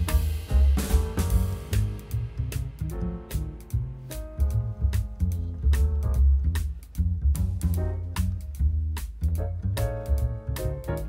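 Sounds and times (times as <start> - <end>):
percussion hits: 0.0 - 5.2
bass line: 0.0 - 11.0.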